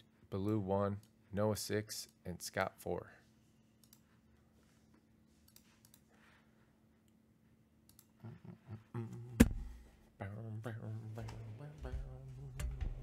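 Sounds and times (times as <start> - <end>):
faint computer mouse clicks: 3.8 - 4.1, 5.4 - 6.1.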